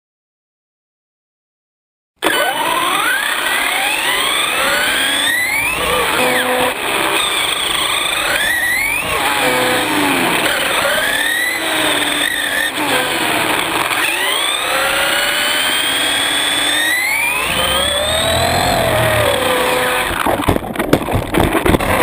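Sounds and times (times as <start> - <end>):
electric motor and gears whining: 2.2 - 22.0
tyre and road noise: 2.2 - 22.0
sharp knocks and rattles: 18.8 - 22.0.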